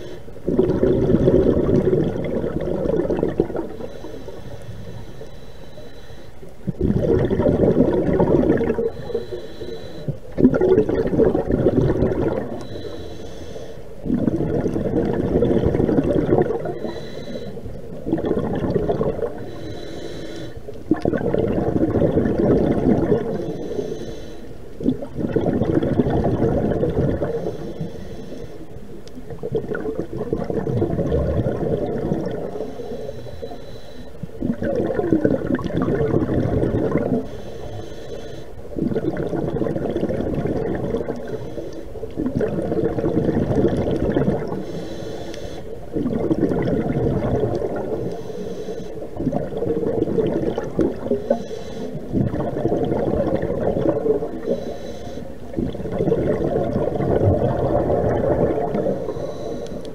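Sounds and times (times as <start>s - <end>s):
diver breathing through regulator: 0.0s - 0.8s, 2.9s - 6.6s, 8.6s - 10.4s, 12.2s - 15.2s, 15.8s - 17.8s, 18.8s - 20.8s, 23.2s - 24.6s, 26.5s - 28.9s, 31.9s - 34.4s, 36.9s - 38.8s, 41.0s - 42.0s, 44.2s - 45.9s, 47.6s - 49.2s, 50.6s - 52.7s, 54.2s - 55.6s, 56.2s - 59.9s
exhaled bubbles gurgling: 0.0s - 5.2s, 6.5s - 59.9s.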